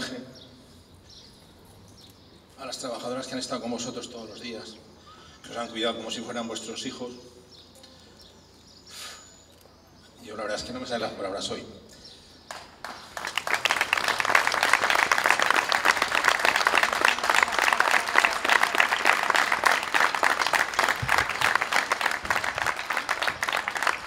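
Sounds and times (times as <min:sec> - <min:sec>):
crowd applauding: 0:12.5 - 0:24.0.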